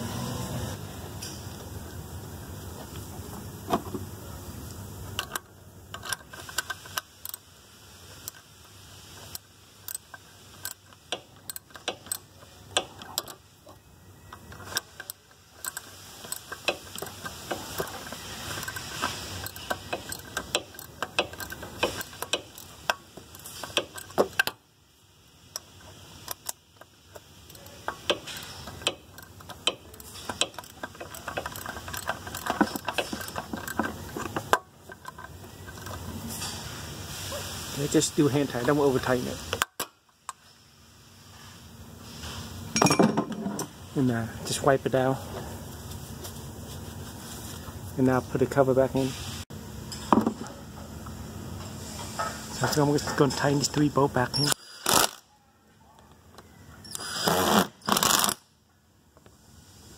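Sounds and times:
ratchet wrench clicking: 5.2s - 7.5s, 8.1s - 13.6s, 14.3s - 24.6s, 25.2s - 36.1s, 53.7s - 55.2s, 56.8s - 58.4s.

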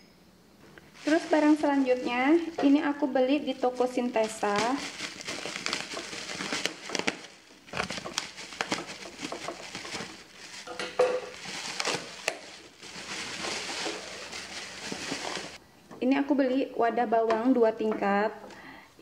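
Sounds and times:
plastic packaging crinkling: 0.8s - 15.6s
packaging torn by hand: 4.2s - 15.6s.

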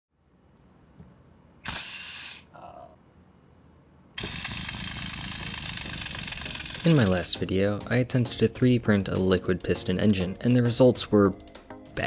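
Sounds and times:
air engine buzzing hiss: 4.2s - 7.1s.

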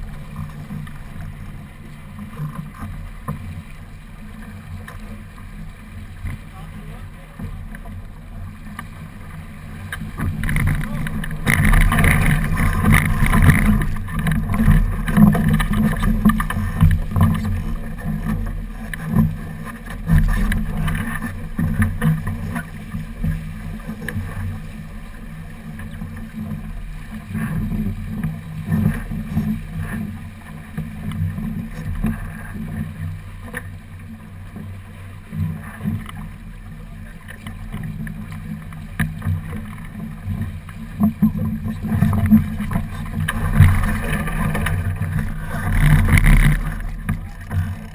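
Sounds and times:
water rushing along hull: 0.0s - 47.9s
wind buffeting camera: 9.9s - 24.6s, 41.2s - 47.9s.

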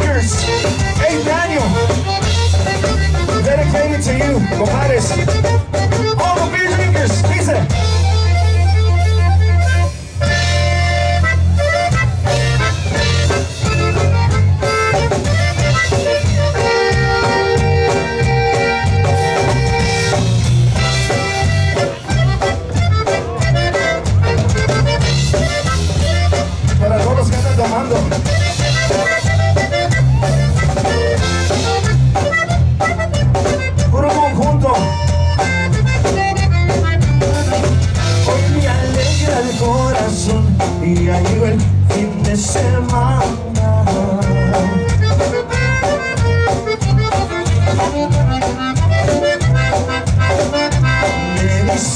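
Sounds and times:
accordion: 0.0s - 51.9s
bass and drum beat: 0.0s - 51.9s.

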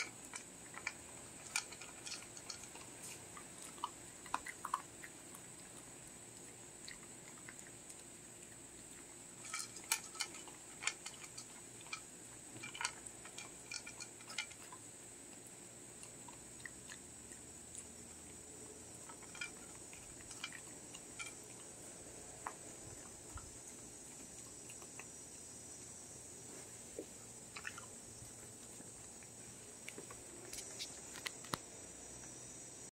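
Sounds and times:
kibble clicking against bowl: 0.0s - 25.5s
puppy crunching kibble: 0.0s - 32.4s.

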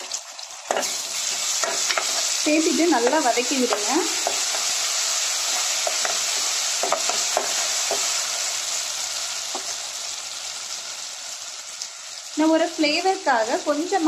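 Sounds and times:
onions sizzling in hot oil: 0.0s - 14.0s
spoon scraping and tapping pot: 3.7s - 4.7s, 5.8s - 8.1s.

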